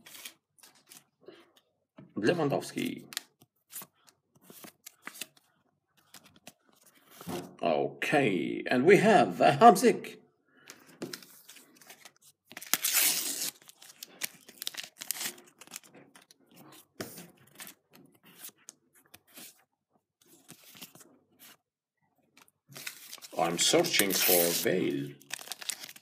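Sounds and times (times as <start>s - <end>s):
paper stickers crinkling and rustling: 2.8s - 7.3s, 11.0s - 19.6s, 20.2s - 21.6s, 22.3s - 26.0s.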